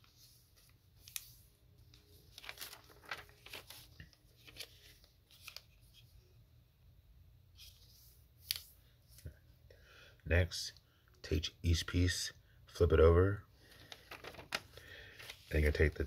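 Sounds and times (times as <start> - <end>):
paper being folded and creased: 0.0 - 6.0, 13.7 - 16.0.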